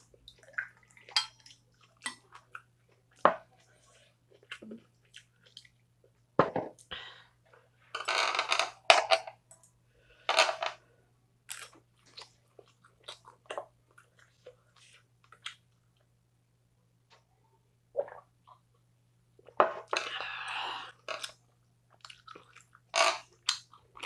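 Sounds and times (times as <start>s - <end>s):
chewing and crunching food: 0.1s - 6.2s, 11.5s - 16.1s, 21.0s - 24.0s.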